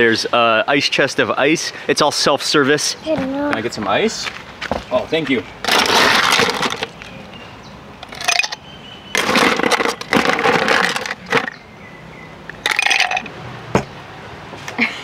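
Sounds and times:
plastic scoop crunching into ice: 5.6s - 7.0s, 9.2s - 11.6s, 12.6s - 13.2s
ice cubes rattling into glass: 5.7s - 6.9s, 8.1s - 8.6s, 9.2s - 11.6s, 12.6s - 13.3s.

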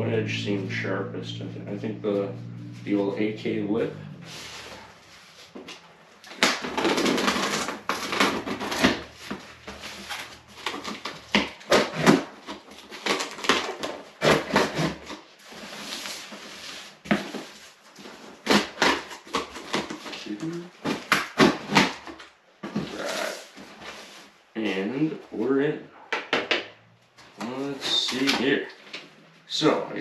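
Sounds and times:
tape scraping and tearing: 4.2s - 24.3s.

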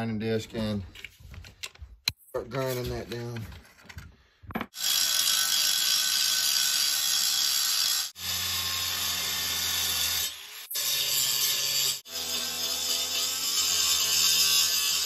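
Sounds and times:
angle grinder grinding metal: 4.8s - 15.0s.

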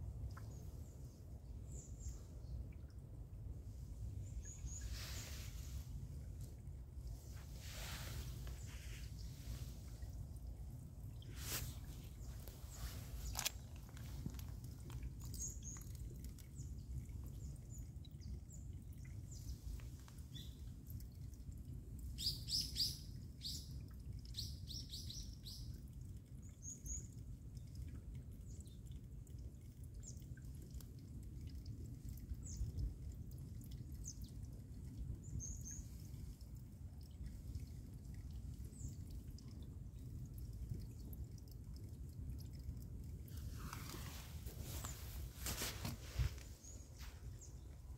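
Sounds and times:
stream water rushing: 7.1s - 15.6s, 43.4s - 47.2s.

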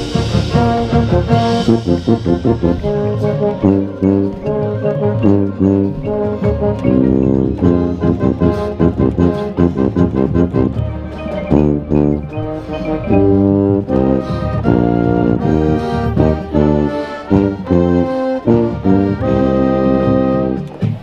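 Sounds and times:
marching band playing: 0.0s - 21.0s.

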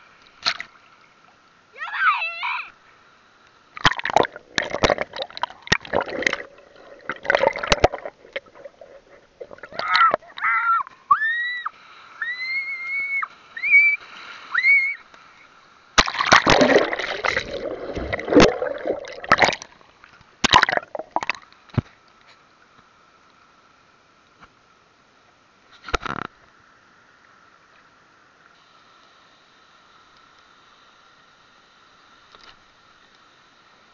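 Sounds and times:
water splashing and sloshing: 3.7s - 11.0s, 15.9s - 22.4s.

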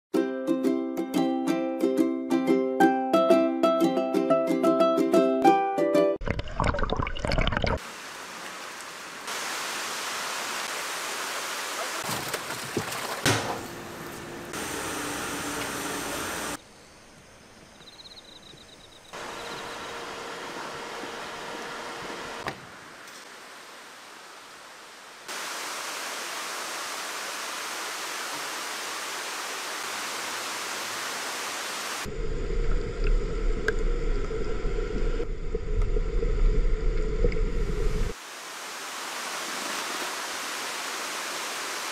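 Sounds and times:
running splashing water: 6.2s - 13.8s
churning water surges: 38.1s - 41.9s.

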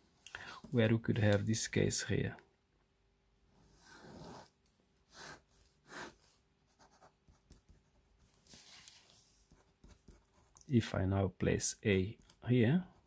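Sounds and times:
pen scratching on paper: 3.6s - 4.5s, 5.1s - 8.0s, 9.2s - 10.5s.

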